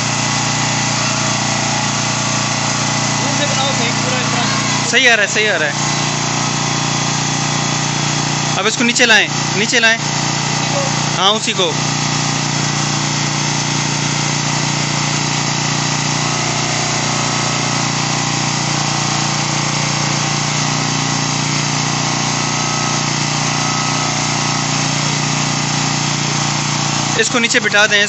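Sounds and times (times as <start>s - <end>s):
bed actuator motor humming: 0.0s - 28.0s.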